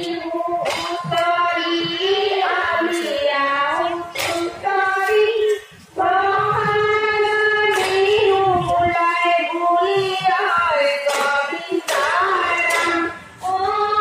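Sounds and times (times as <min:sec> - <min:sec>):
sharp clap: 0:00.0 - 0:01.3, 0:04.1 - 0:05.2, 0:07.7 - 0:08.2, 0:11.0 - 0:13.2
woman singing: 0:00.0 - 0:14.0.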